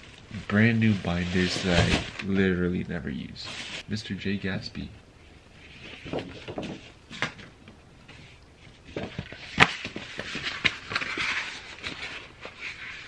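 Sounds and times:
paper rustling: 8.1s - 13.0s
paper being crumpled: 8.9s - 13.0s.

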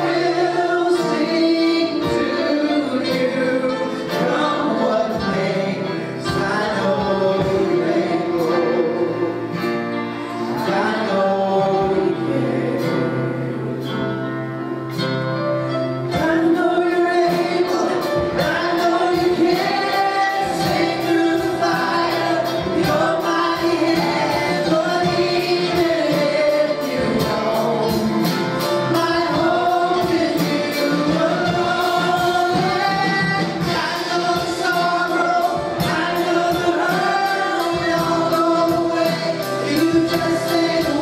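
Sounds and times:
gospel choir singing: 0.0s - 41.0s
instrumental accompaniment: 0.0s - 41.0s
steady drum beat: 4.2s - 9.6s, 16.2s - 41.0s.

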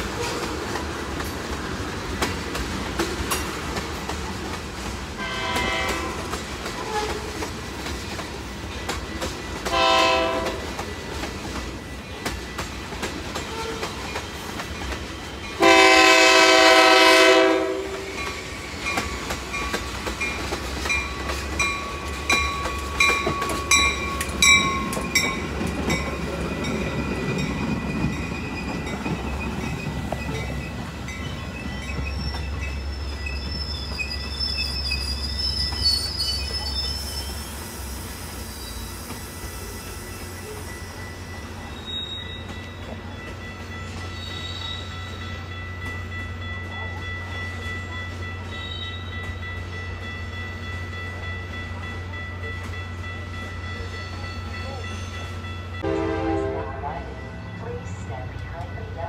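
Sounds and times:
wheels clicking over rail joints: 0.0s - 15.6s, 18.2s - 32.8s
train horn blasts: 5.2s - 7.4s, 9.6s - 10.8s, 13.4s - 14.0s, 15.6s - 18.3s, 55.8s - 57.2s
thin high wheel squeal: 31.6s - 40.8s, 41.7s - 42.6s, 44.1s - 45.1s.

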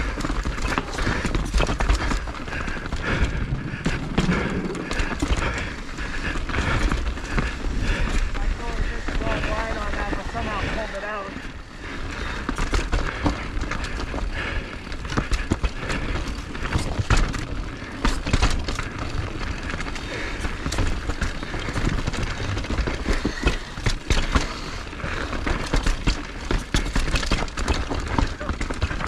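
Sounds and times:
skis scraping over snow: 1.8s - 12.4s.

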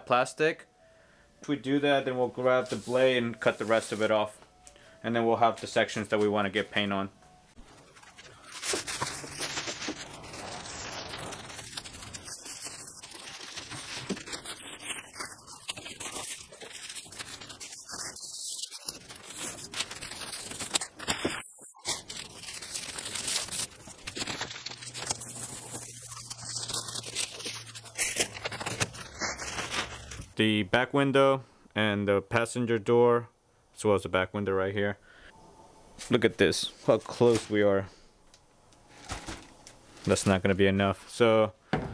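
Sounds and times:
plastic sheet crinkling: 7.6s - 30.4s, 38.8s - 40.5s.

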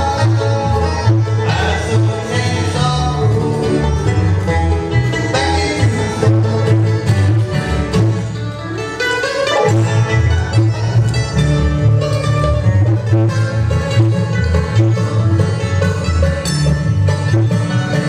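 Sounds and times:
acoustic guitar: 0.0s - 18.0s
banjo: 0.0s - 18.0s
mandolin: 0.0s - 18.0s
upright bass plucking: 0.0s - 18.0s.

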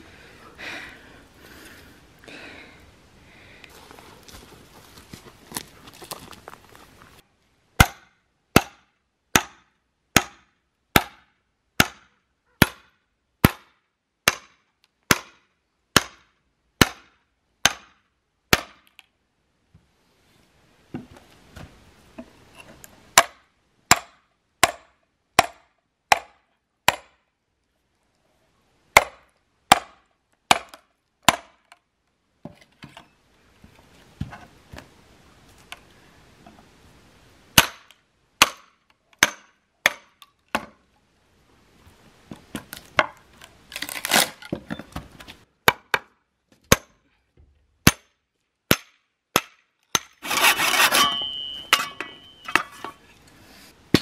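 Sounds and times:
axe hammering wedges into log: 7.8s - 18.9s, 23.2s - 27.2s, 29.0s - 31.7s, 37.6s - 40.8s, 45.6s - 47.0s, 47.8s - 48.1s, 48.7s - 53.0s
wood cracking and splitting: 42.6s - 45.9s.

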